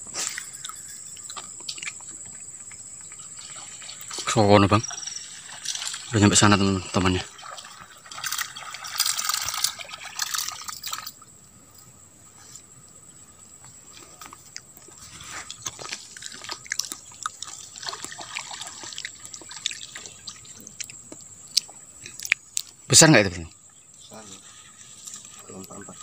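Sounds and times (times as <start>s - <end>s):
water sloshing and trickling: 0.2s - 12.0s, 12.7s - 26.0s
small clicks and rustles: 8.1s - 11.2s.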